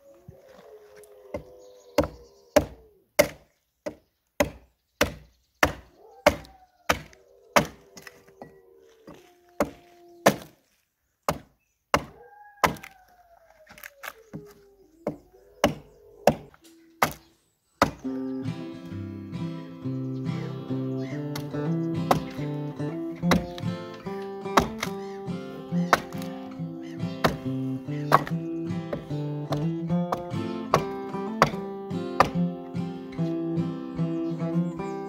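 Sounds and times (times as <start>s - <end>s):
dogs howling: 0.0s - 3.1s, 5.8s - 10.4s, 12.1s - 17.0s, 19.9s - 31.5s
axe chopping into log: 1.3s - 8.1s, 9.6s - 10.6s, 11.3s - 13.0s, 15.1s - 17.2s, 17.8s - 18.0s, 22.1s - 32.6s
acoustic guitar music: 18.0s - 35.0s.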